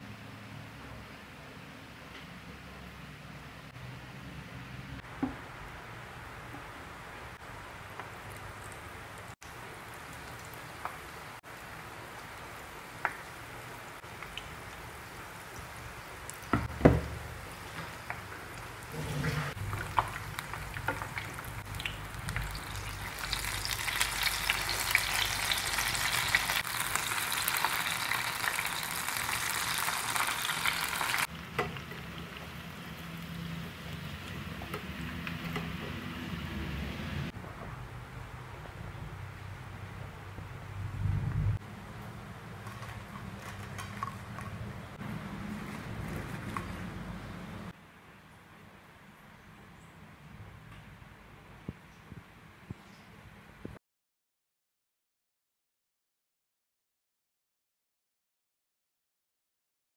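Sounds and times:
oil sizzling while deep-frying: 0:05.0 - 0:37.4.

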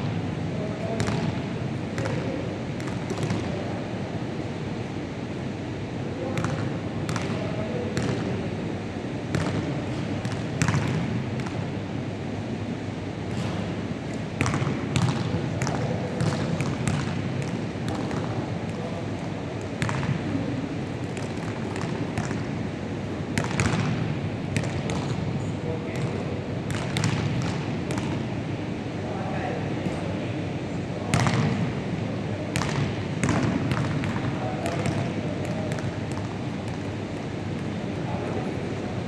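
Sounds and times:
basketballs bouncing on wooden floor: 0:01.0 - 0:01.4, 0:02.0 - 0:03.5, 0:09.3 - 0:11.6, 0:14.4 - 0:18.9, 0:19.8 - 0:20.3, 0:21.0 - 0:22.5, 0:23.4 - 0:24.0, 0:24.6 - 0:25.2, 0:25.9 - 0:28.2, 0:31.1 - 0:31.6, 0:32.5 - 0:37.2.

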